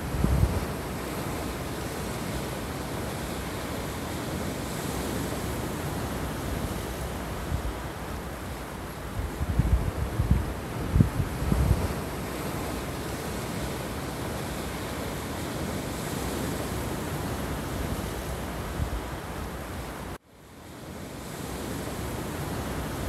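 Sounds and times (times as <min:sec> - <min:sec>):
wind buffeting microphone: 0:00.0 - 0:02.5, 0:04.3 - 0:13.7.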